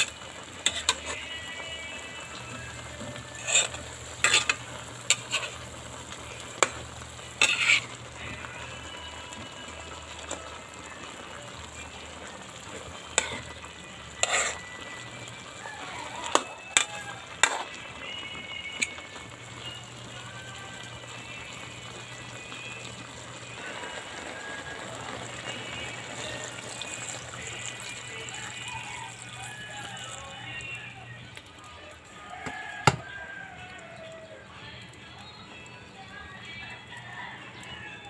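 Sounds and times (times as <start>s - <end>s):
metal spatula scraping a wok: 0.0s - 1.3s, 3.1s - 5.7s, 7.3s - 8.0s, 13.1s - 13.5s, 14.1s - 14.8s, 16.3s - 17.7s
frying sizzle: 0.0s - 38.0s.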